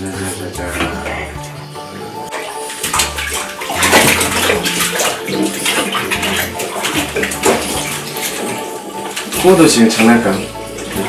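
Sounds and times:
bathwater sloshing and splashing: 0.0s - 11.0s
wet towels rubbing: 2.3s - 11.0s.

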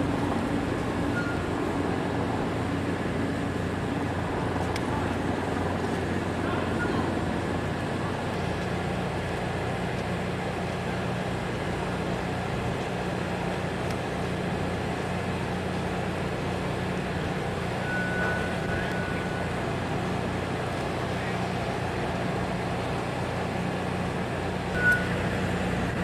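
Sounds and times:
heavy machinery rumbling: 0.0s - 26.0s.

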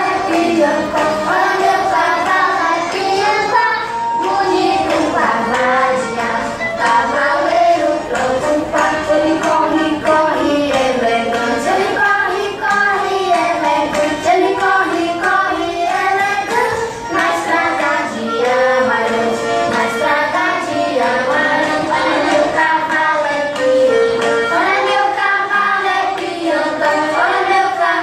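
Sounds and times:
instrumental backing music: 0.0s - 28.0s.

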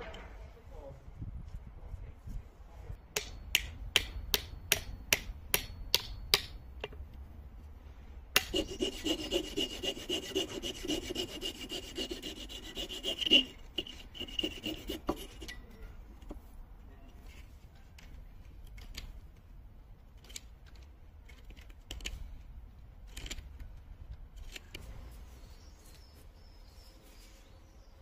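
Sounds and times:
file scraping steel with squealing ring: 8.4s - 16.0s.

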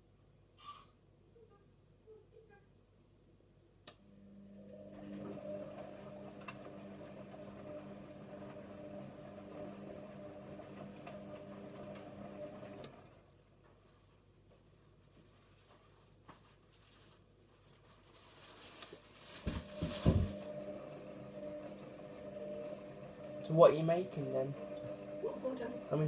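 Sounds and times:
washing machine drum humming: 4.5s - 13.2s, 19.5s - 26.0s.

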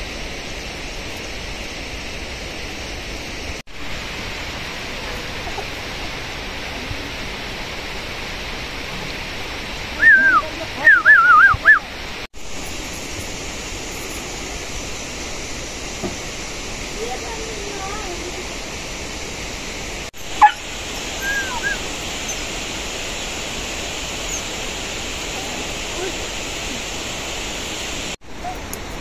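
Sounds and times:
rushing water in rain: 0.0s - 29.0s
high warbling whistles: 10.0s - 12.0s, 20.2s - 22.6s, 24.1s - 24.7s.

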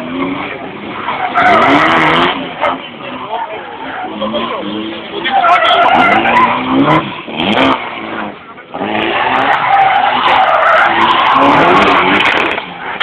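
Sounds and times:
car engine working hard: 0.0s - 13.0s
tyres screeching on asphalt: 0.0s - 13.0s.

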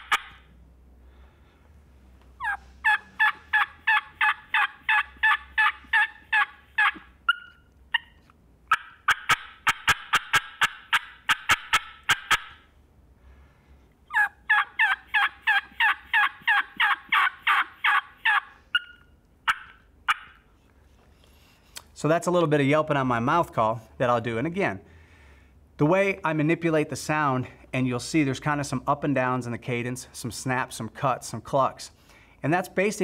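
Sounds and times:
turkey call clucks: 0.0s - 0.5s, 2.4s - 12.6s, 14.1s - 20.5s
turkey call yelps: 0.0s - 0.5s, 2.4s - 12.7s, 14.1s - 20.5s.

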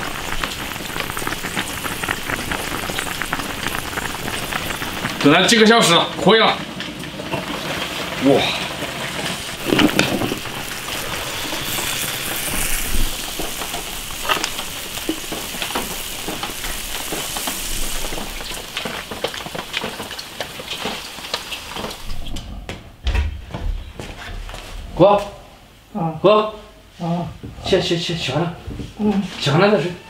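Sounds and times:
sauce bubbling and sizzling in wok: 0.0s - 22.5s.

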